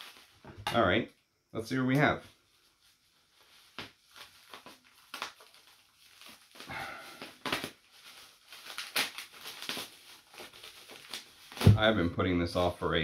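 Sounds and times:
packaging rustling and crinkling: 0.0s - 0.6s, 2.2s - 13.0s
packaging ripping: 3.4s - 12.0s.

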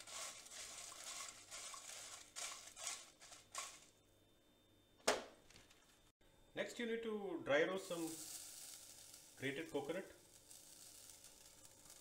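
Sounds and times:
spatula scraping dry spices: 0.0s - 3.8s.

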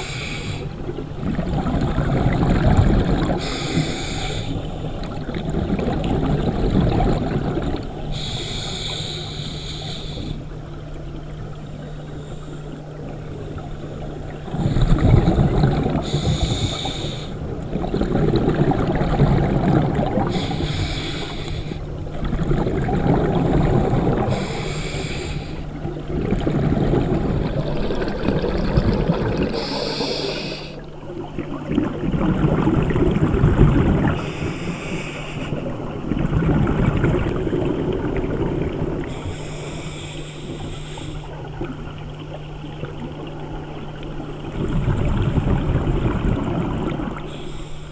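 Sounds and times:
regulator inhale hiss: 0.0s - 0.8s, 3.4s - 4.9s, 8.1s - 10.5s, 16.0s - 17.4s, 20.3s - 21.9s, 24.3s - 25.7s, 29.5s - 30.9s, 34.2s - 35.7s, 39.0s - 41.5s, 47.3s - 47.9s
exhaled bubbles rumbling: 0.0s - 9.2s, 10.0s - 47.9s.

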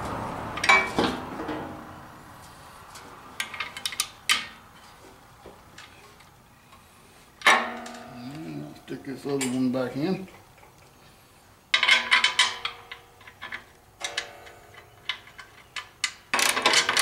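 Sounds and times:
hand tools clinking on metal: 7.4s - 10.3s, 11.8s - 17.0s.

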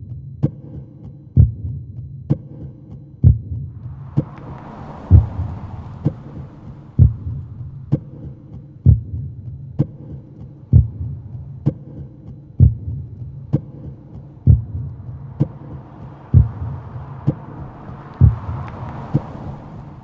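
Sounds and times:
slow deep thumps: 3.2s - 10.0s, 10.7s - 11.7s, 12.5s - 19.4s.

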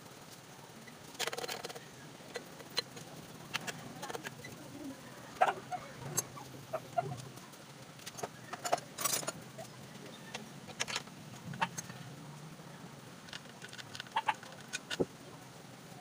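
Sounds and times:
metal tools clicking and clinking: 8.0s - 9.4s.

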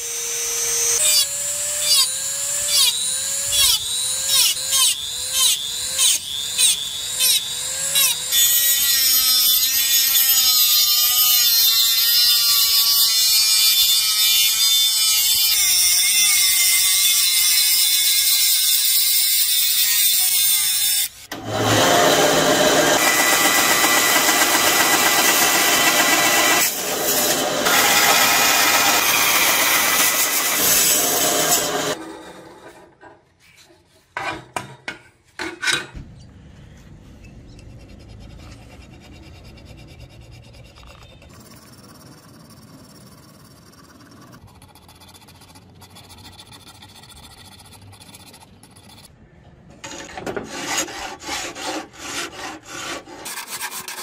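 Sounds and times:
bandsaw cutting brass: 0.0s - 32.0s
rotary tool cutting brass: 0.0s - 32.0s.

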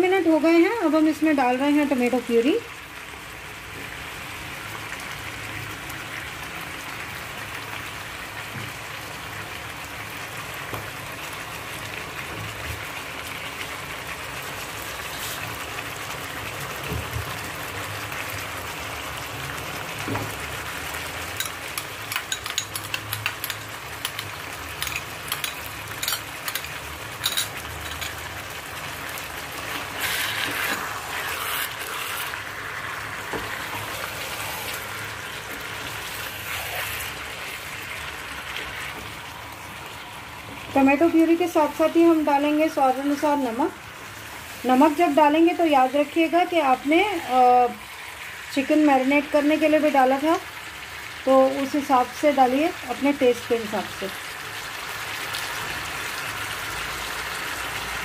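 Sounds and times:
chicken frying in oil: 0.0s - 58.0s
puree pouring into pan: 29.6s - 39.6s.

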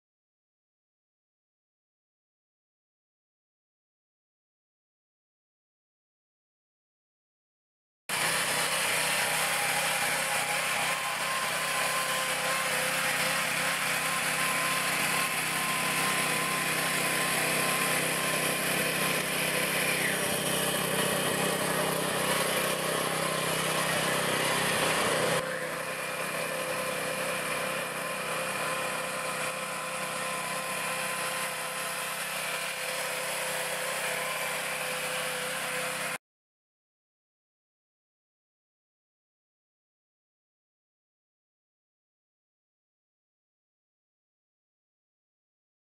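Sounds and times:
lawn mower engine running: 8.1s - 36.2s.

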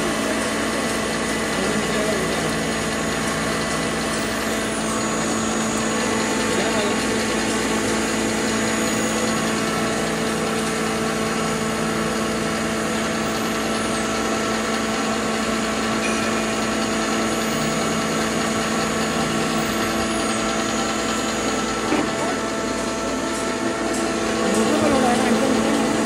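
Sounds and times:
spice grinder motor whining: 0.0s - 26.0s.

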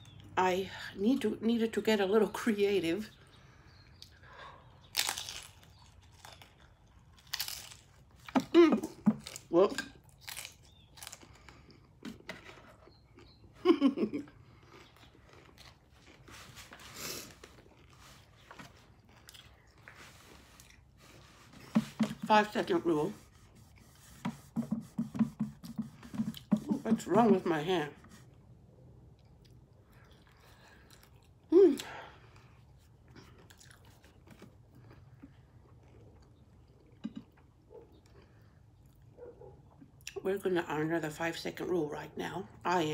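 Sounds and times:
person chewing crunchy food: 3.9s - 13.6s, 14.3s - 22.0s, 29.0s - 31.5s, 32.2s - 40.2s.

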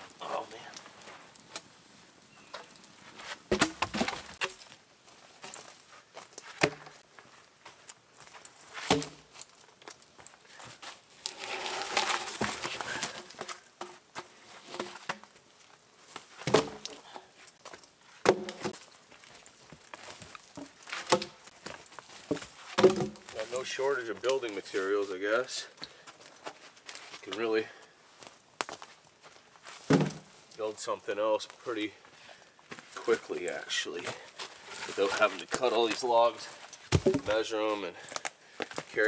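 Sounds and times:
wooden knocks of logs: 3.5s - 4.8s, 6.4s - 7.0s, 8.8s - 10.0s, 16.4s - 18.9s, 19.8s - 23.4s, 29.8s - 30.4s, 36.9s - 37.4s
dog scratching dirt: 11.3s - 13.1s.

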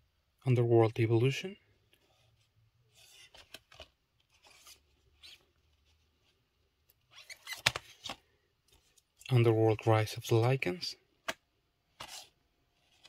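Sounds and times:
cardboard rustling and scraping: 12.0s - 13.0s.

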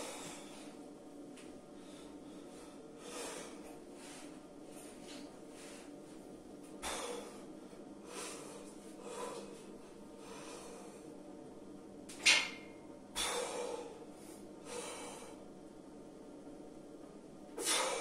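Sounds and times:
man exhaling forcefully: 6.8s - 7.3s, 13.2s - 13.9s, 17.6s - 18.0s.

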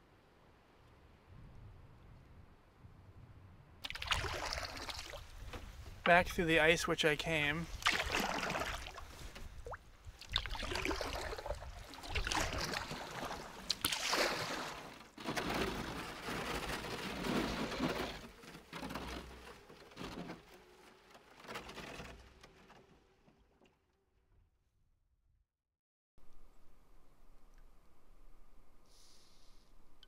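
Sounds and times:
canoe breaking thin ice: 3.8s - 6.2s, 7.3s - 22.7s
water sloshing: 3.8s - 6.2s, 7.3s - 20.5s.

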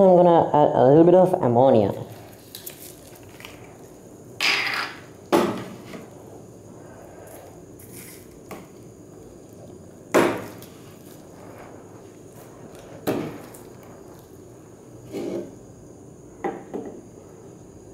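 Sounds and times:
bottle knocking on bench: 16.4s - 17.0s.

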